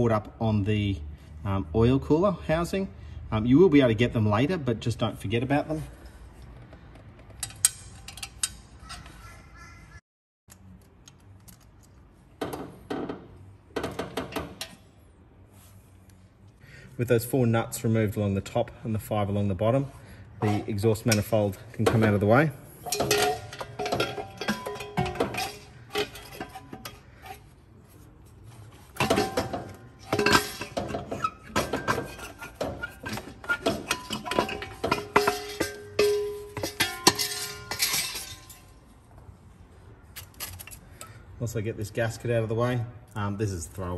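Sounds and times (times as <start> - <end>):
metal manifold clanking: 20.4 - 27.5, 28.9 - 38.7.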